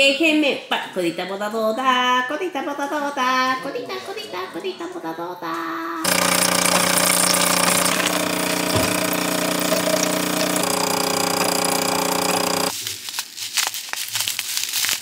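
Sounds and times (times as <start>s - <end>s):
appliance motor buzzing: 6.0s - 12.7s.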